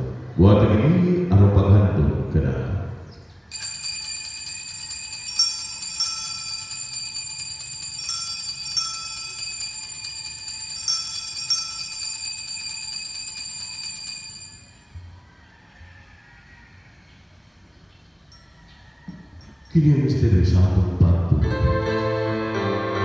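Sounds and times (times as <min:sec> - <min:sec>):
small bells ringing: 0:03.5 - 0:15.0, 0:18.2 - 0:19.8.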